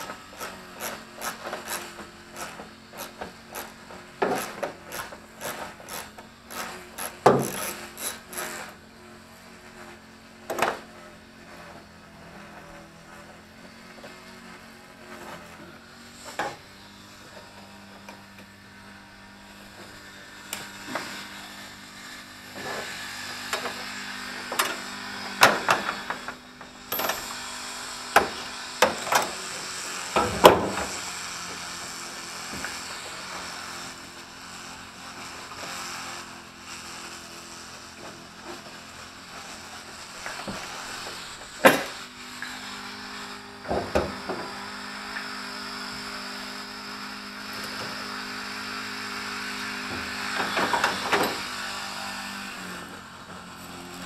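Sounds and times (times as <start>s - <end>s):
clicks and knocks of tools: 23.4s - 27.4s, 28.2s - 29.4s, 49.9s - 51.5s.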